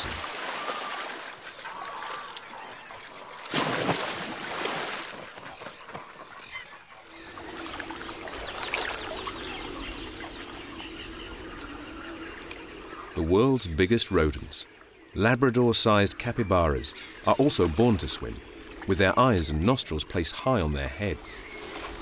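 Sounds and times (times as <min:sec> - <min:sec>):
animal splashing in water: 0:00.0 - 0:02.6, 0:03.4 - 0:05.6
faint bird calls: 0:00.0 - 0:03.5, 0:04.6 - 0:20.0
water lapping: 0:00.0 - 0:13.4.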